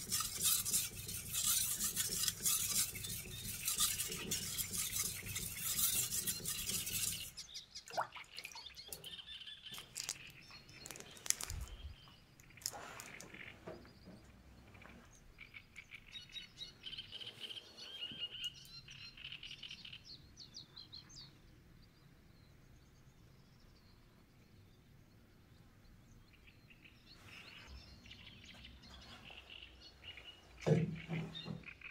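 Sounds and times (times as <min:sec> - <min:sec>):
blade stroked on whetstone: 0:00.0 - 0:07.4
small birds chirping: 0:00.0 - 0:31.9.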